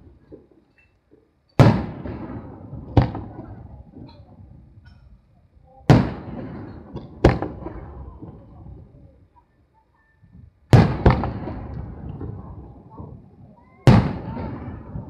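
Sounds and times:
rumbling echo: 0:01.6 - 0:04.8, 0:10.8 - 0:15.0
firework shells booming: 0:01.6 - 0:05.0, 0:05.9 - 0:08.5, 0:10.7 - 0:15.0.

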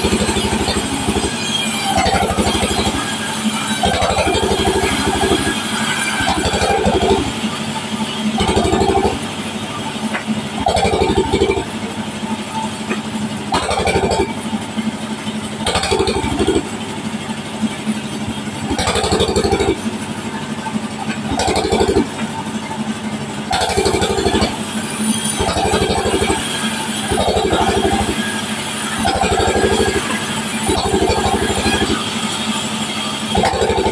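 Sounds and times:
band saw cutting log: 0:00.0 - 0:33.9.

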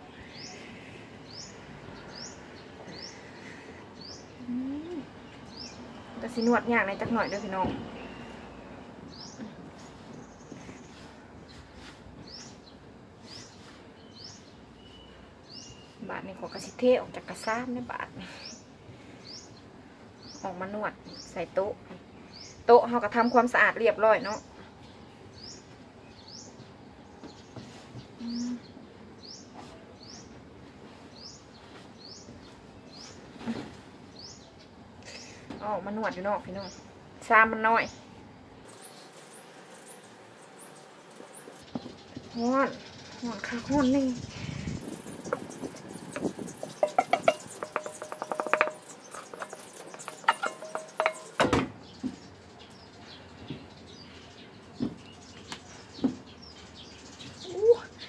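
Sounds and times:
bird chirping: 0:12.2 - 0:16.8, 0:27.3 - 0:30.3, 0:38.6 - 0:58.0
metal spatula scraping metal bowl: 0:45.3 - 0:51.4
bowl knocking down: 0:46.2 - 0:51.7.

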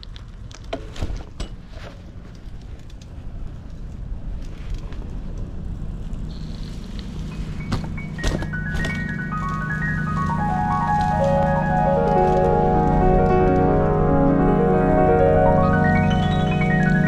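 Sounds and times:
bike tyres rumbling on pavement: 0:00.0 - 0:12.0.

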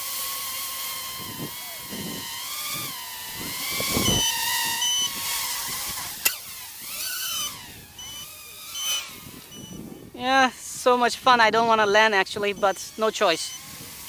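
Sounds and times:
drone motors whining: 0:00.0 - 0:14.0
short high beeps: 0:04.1 - 0:05.1, 0:08.0 - 0:09.8.

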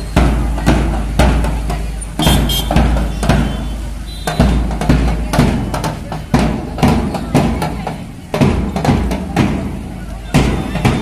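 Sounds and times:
bass drum beats: 0:00.0 - 0:11.0.

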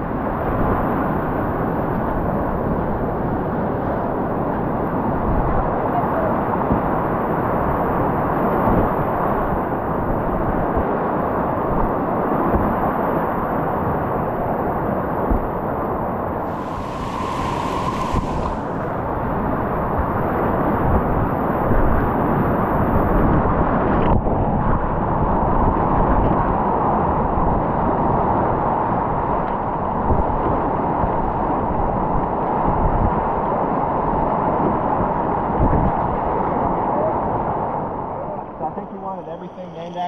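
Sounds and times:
river rapids rushing: 0:16.4 - 0:19.4.

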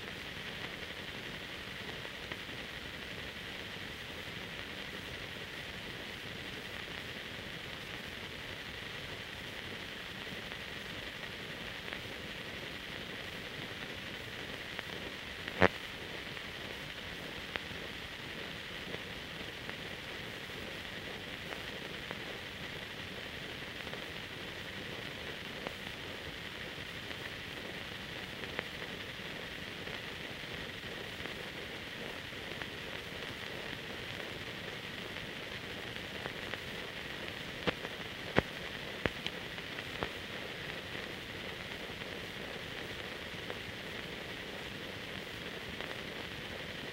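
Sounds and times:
film noise hiss: 0:00.0 - 0:46.9
sharp clicks and pops: 0:35.8 - 0:42.2.

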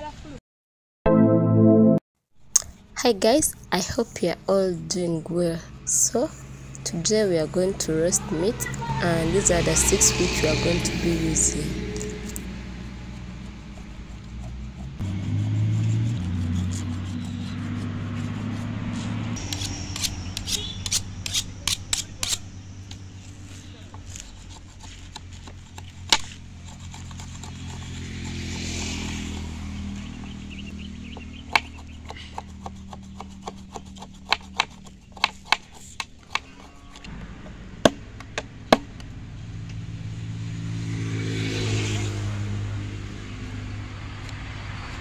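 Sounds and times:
vehicle engine passing: 0:02.8 - 0:35.1, 0:36.5 - 0:45.0
knife striking wood: 0:19.4 - 0:29.5, 0:31.5 - 0:36.7.

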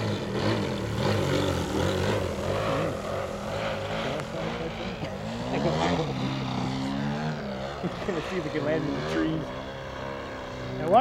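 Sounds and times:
model plane engine in flight: 0:00.0 - 0:11.0.

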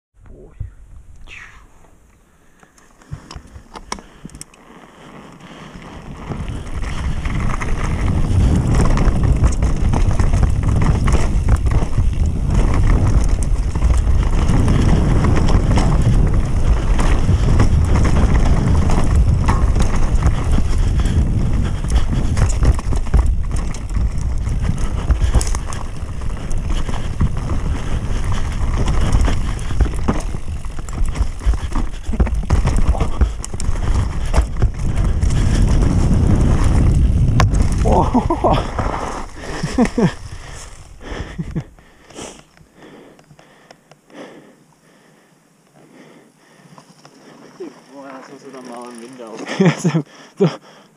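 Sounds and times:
bike tyres rumbling on dirt: 0:00.9 - 0:50.9
bike rattling and knocking: 0:03.1 - 0:42.1, 0:46.9 - 0:50.0
wind buffeting microphone: 0:05.8 - 0:42.0.

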